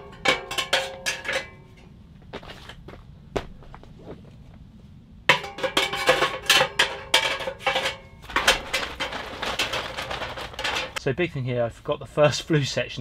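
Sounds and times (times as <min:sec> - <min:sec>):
metal clanking and scraping in stove: 0:00.0 - 0:01.9, 0:05.3 - 0:11.0.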